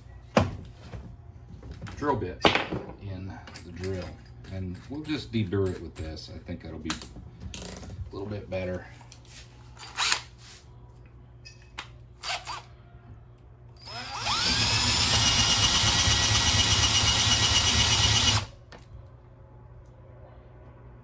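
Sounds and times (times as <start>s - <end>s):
cordless drill whining: 13.8s - 18.5s.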